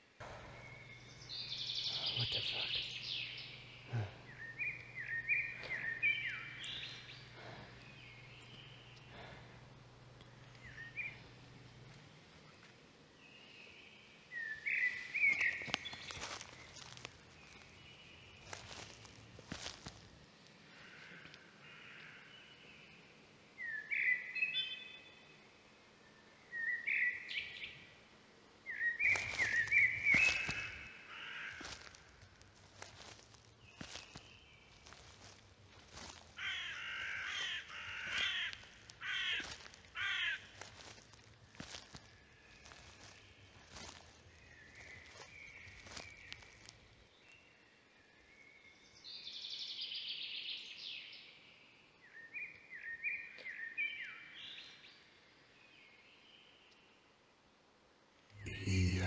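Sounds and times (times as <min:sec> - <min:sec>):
bird chirping call: 0:00.2 - 0:09.5, 0:10.3 - 0:11.4, 0:28.7 - 0:31.9
crackles and snaps on forest floor: 0:00.2 - 0:12.8, 0:14.6 - 0:22.2, 0:29.0 - 0:47.4
bird cawing: 0:02.7 - 0:11.4, 0:29.0 - 0:46.7.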